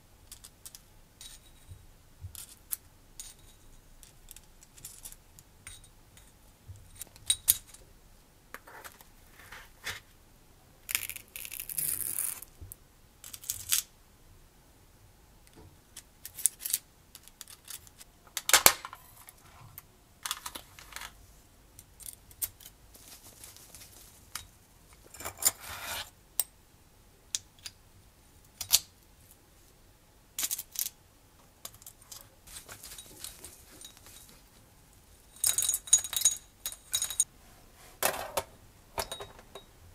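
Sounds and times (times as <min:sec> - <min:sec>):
small metallic clicks and clinks: 0:35.3 - 0:37.3.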